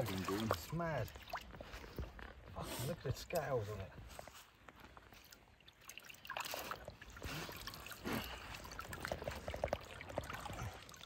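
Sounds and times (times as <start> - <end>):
water pouring and trickling: 0.0 - 2.3, 5.0 - 11.0.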